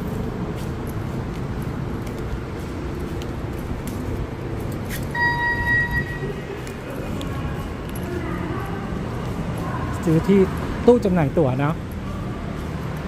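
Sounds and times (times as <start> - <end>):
electronic beep: 5.2 - 6.4.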